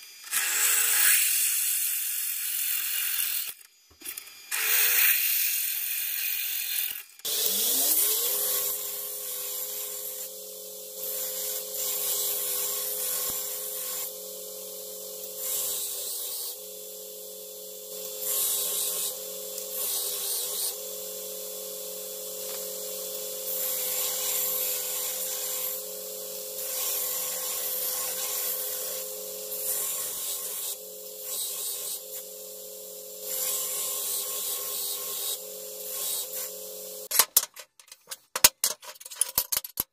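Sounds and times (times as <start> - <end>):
belt grinder motor humming: 7.2 - 37.1
drill press boring into steel: 7.3 - 37.1
steel grinding on abrasive belt: 7.3 - 37.1.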